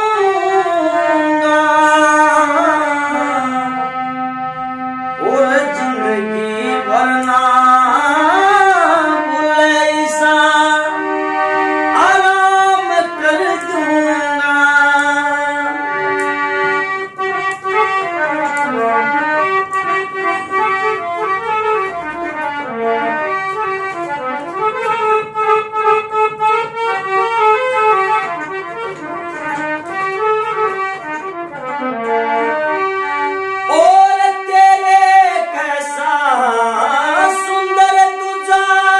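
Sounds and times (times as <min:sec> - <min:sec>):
man singing: 0:00.0 - 0:04.0, 0:05.1 - 0:11.2, 0:11.9 - 0:16.1, 0:33.7 - 0:38.9
harmonium melody: 0:00.0 - 0:38.9.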